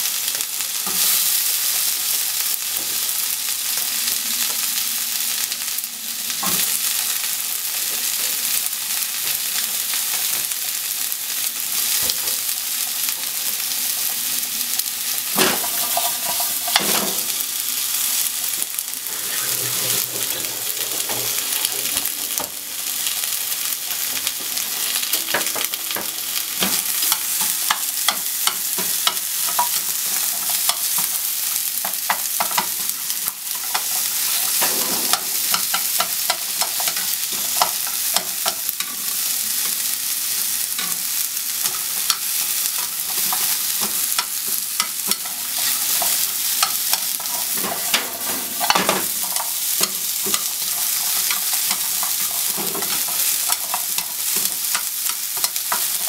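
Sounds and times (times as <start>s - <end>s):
onions sizzling in a frying pan: 0.0s - 56.0s
chopsticks scraping a pan: 15.2s - 39.8s, 41.6s - 56.0s.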